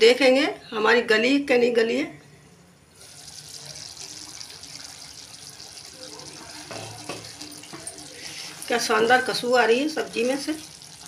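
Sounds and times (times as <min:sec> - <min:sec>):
curry sizzling in a pan: 0:03.0 - 0:11.0.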